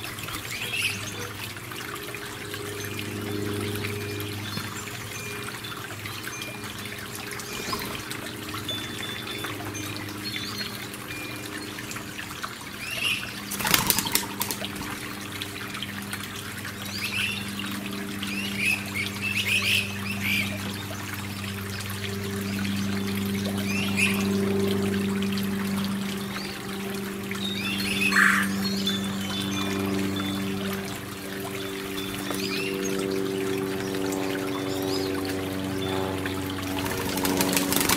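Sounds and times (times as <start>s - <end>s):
low even hum: 0.0s - 37.9s
water trickling: 0.0s - 37.9s
small birds chirping: 27.4s - 37.9s.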